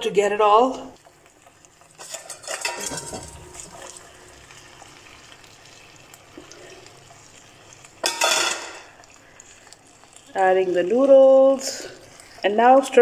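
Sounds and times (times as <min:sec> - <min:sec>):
faint sizzle: 0:00.0 - 0:13.0
cookware clattering in a pan: 0:01.9 - 0:04.0, 0:08.0 - 0:09.0.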